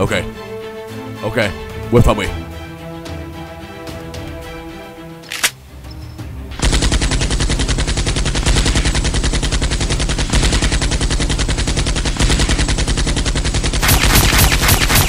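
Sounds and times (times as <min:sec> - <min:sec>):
automatic gunfire: 0:06.6 - 0:15.0.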